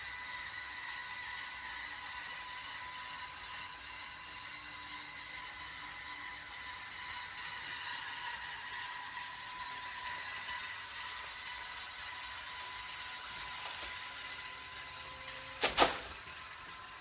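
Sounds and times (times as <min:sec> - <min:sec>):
electric motor whirring: 0:00.0 - 0:17.0
rake sweeping through litter: 0:13.4 - 0:14.4, 0:15.4 - 0:16.2.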